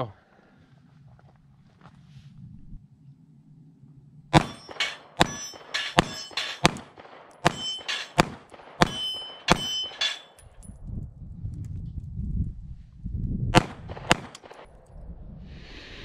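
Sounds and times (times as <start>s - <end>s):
steel plates ringing: 4.4s - 6.8s, 7.4s - 10.4s
pistol shots: 4.4s - 10.4s, 13.6s - 14.8s.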